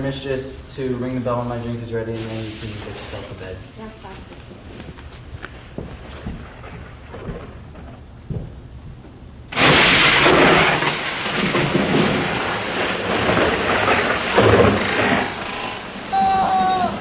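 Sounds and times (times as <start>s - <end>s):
heavy rain: 2.1s - 3.9s, 9.5s - 17.0s
thunder crash: 9.5s - 17.0s.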